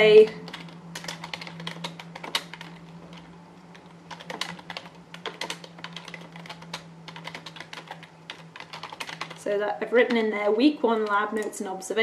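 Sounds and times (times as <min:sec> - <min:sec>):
keyboard key clicks: 0:00.5 - 0:03.2.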